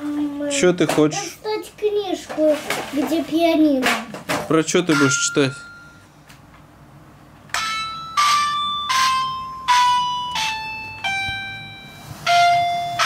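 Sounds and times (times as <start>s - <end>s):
toy piano bell-like notes: 4.9s - 6.1s, 7.5s - 13.0s.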